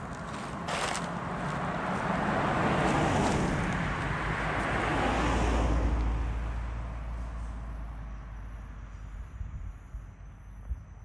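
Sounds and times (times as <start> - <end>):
car driving past: 1.6 - 8.0.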